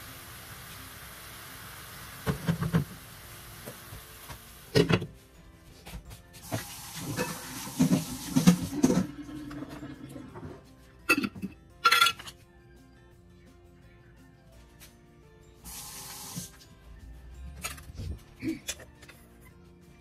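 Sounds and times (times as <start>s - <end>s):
asparagus hissing in hot pan: 0.0s - 4.7s, 15.7s - 16.5s.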